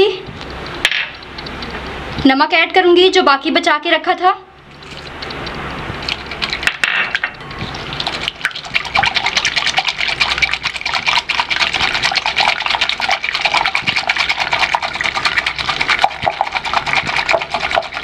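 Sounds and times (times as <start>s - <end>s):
whisk wires clicking on glass: 4.7s - 8.6s
whisk beating eggs: 4.9s - 6.7s, 7.6s - 18.0s.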